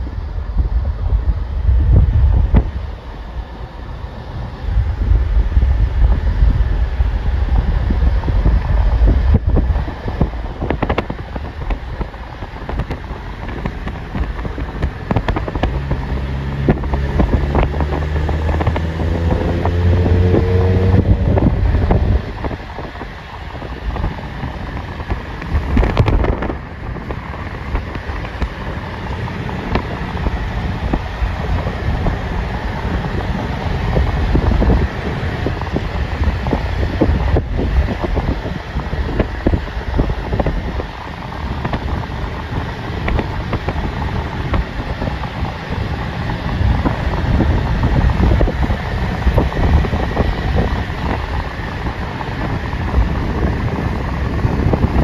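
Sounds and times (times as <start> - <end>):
steady low rumble: 0.0 - 55.0
wind buffeting microphone: 0.0 - 55.0
engine note rising: 14.7 - 55.0.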